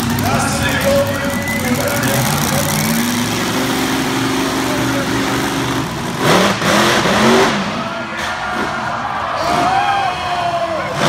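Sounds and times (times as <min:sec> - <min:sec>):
truck engine revving: 0:00.0 - 0:11.0.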